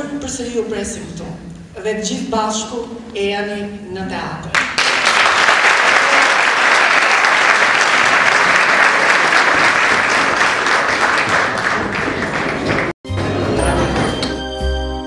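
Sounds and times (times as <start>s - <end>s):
audience applauding: 4.6s - 13.0s.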